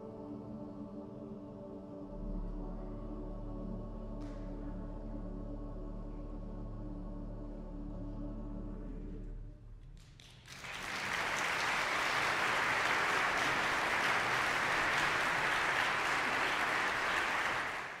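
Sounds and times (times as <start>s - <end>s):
audience applause: 10.4s - 18.0s.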